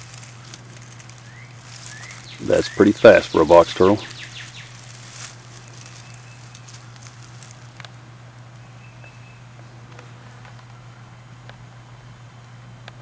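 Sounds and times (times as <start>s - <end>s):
low drone and hiss: 0.0s - 13.0s
faint short rustles: 3.8s - 7.8s.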